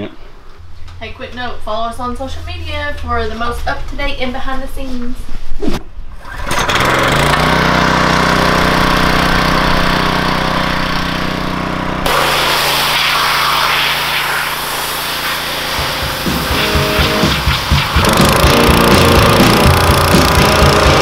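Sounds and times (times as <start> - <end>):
pressure washer engine running: 6.2 - 21.0
water jet hissing on metal: 12.1 - 18.2.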